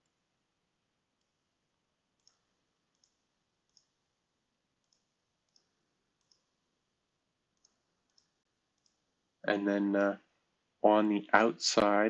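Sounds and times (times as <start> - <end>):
computer mouse clicks: 2.2 - 4.0, 4.8 - 6.6, 7.5 - 9.1.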